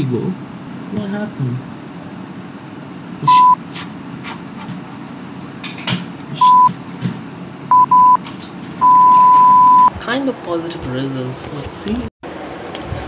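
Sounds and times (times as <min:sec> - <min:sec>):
censor bleep tone: 0:03.2 - 0:03.6, 0:06.4 - 0:06.7, 0:07.7 - 0:08.2, 0:08.8 - 0:09.9.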